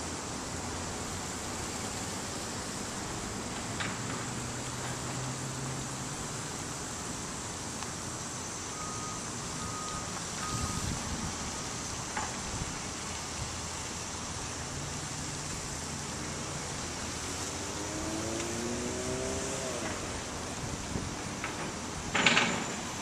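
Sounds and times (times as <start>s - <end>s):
road traffic hum: 0.0s - 23.0s
short electronic beeps: 8.8s - 10.9s
vehicle engine rising in pitch: 16.3s - 20.7s.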